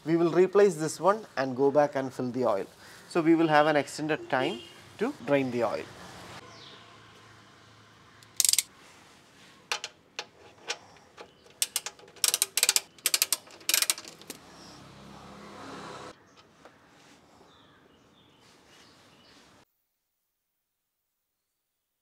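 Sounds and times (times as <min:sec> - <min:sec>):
socket wrench ratchet clicking: 0:08.3 - 0:08.7, 0:10.7 - 0:14.4.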